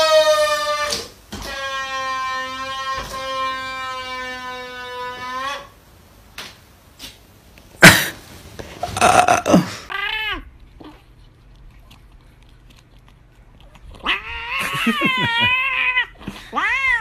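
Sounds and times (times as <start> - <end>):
deflating balloon squealing: 0.0 - 5.8, 14.0 - 17.0.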